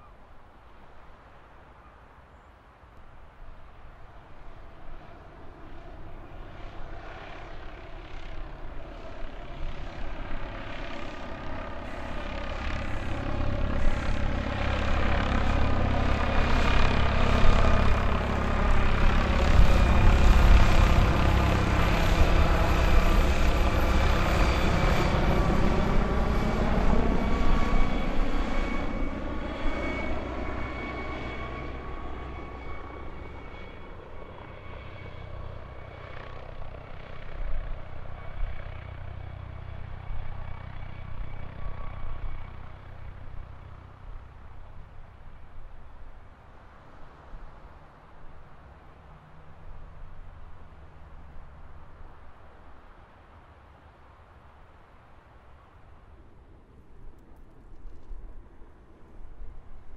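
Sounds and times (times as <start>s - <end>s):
aircraft engine rumble: 0.0s - 59.9s.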